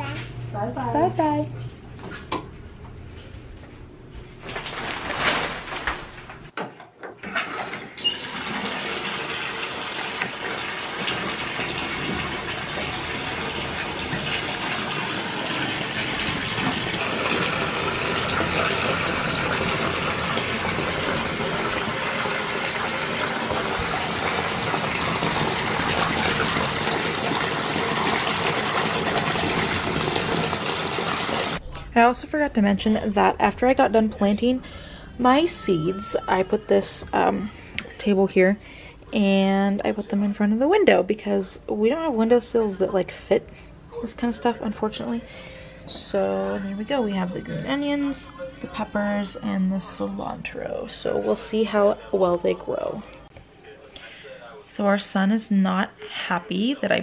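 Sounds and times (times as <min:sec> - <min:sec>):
water pouring into bathtub: 0:07.2 - 0:31.6.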